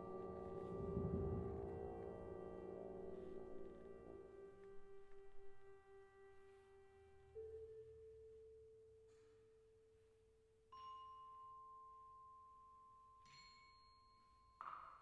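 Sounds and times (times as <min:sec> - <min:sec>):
held low note: 0:00.0 - 0:05.8.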